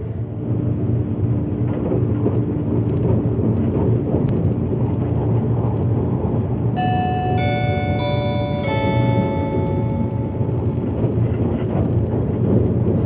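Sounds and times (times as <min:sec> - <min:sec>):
train running rumble: 0:00.0 - 0:13.0
sustained musical notes: 0:06.8 - 0:11.2.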